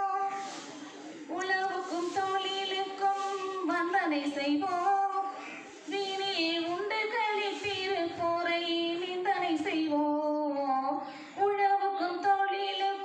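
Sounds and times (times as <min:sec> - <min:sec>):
woman singing unaccompanied: 0:00.0 - 0:00.4, 0:01.3 - 0:13.0.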